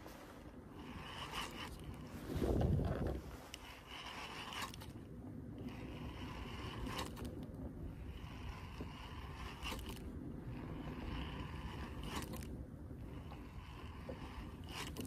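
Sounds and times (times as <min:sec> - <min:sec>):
soft scraping swish: 0:00.0 - 0:07.4
wind on microphone: 0:00.0 - 0:15.0.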